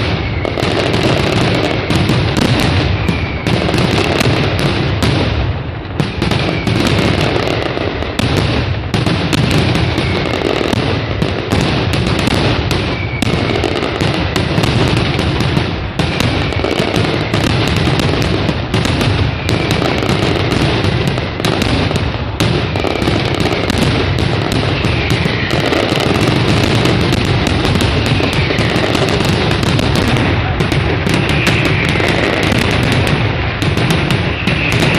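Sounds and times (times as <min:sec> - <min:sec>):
firecracker bangs: 0:00.0 - 0:34.9
falling whistles: 0:00.1 - 0:02.0, 0:02.8 - 0:04.2, 0:06.0 - 0:07.2, 0:09.5 - 0:11.2, 0:12.7 - 0:14.6, 0:19.1 - 0:20.6, 0:24.4 - 0:34.9.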